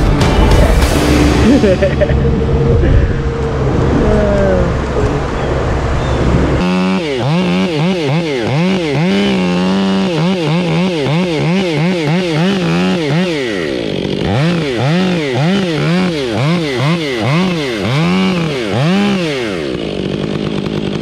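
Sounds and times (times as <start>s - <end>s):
low rumble: 0.0s - 6.6s
chainsaw cutting wood: 6.3s - 21.0s.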